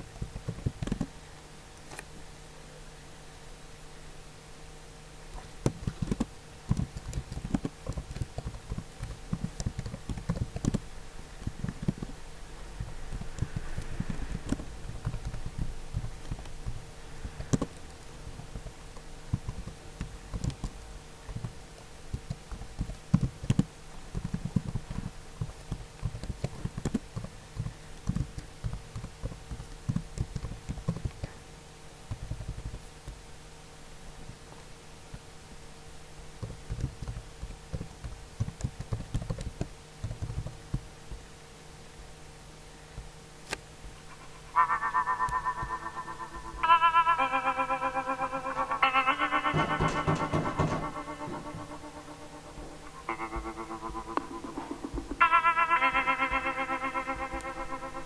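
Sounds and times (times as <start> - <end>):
steady low hum: 0.0 - 58.0
computer keyboard typing: 5.6 - 10.8, 11.4 - 12.1, 12.8 - 31.3, 32.1 - 33.2, 36.4 - 40.8.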